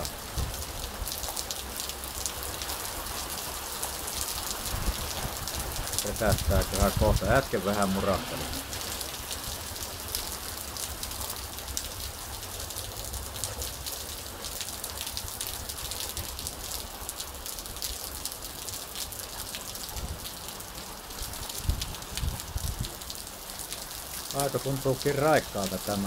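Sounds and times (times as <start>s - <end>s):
heavy rain on asphalt and grass: 0.0s - 26.0s.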